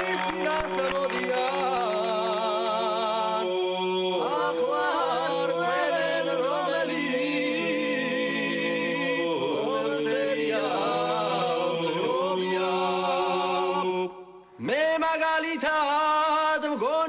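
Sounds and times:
man singing lead melody: 0.0 - 3.6.

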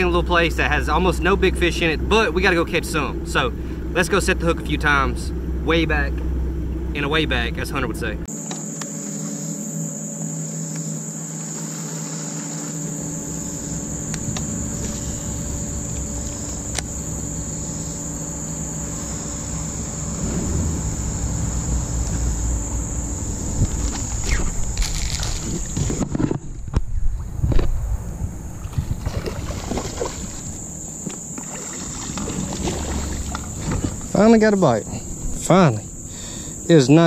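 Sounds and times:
high-pitched insect chorus: 0.0 - 26.4, 27.0 - 37.0
faint low hum: 12.7 - 37.0.

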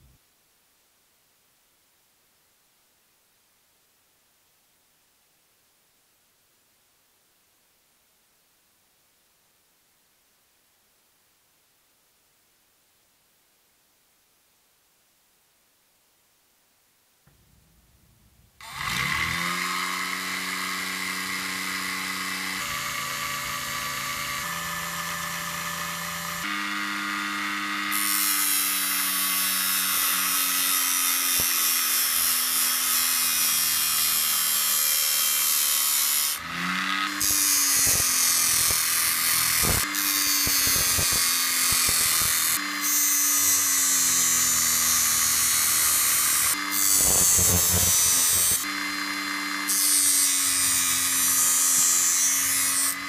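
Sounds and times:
small motor whining: 18.6 - 53.0
wood sanding hiss: 37.2 - 53.0.

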